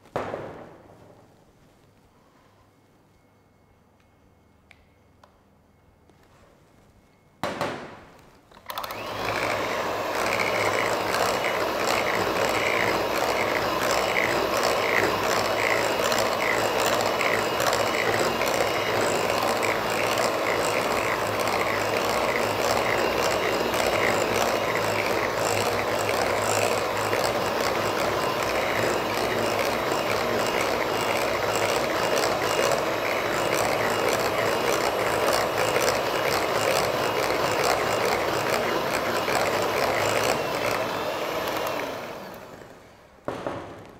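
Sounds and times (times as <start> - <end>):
electric hand mixer beating: 8.7 - 42.9.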